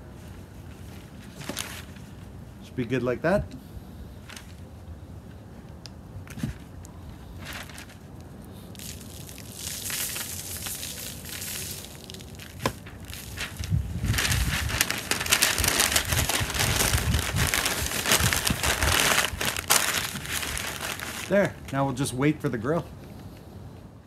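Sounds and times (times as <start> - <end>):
paper crinkling and rustling: 0.7 - 2.3, 6.3 - 21.6.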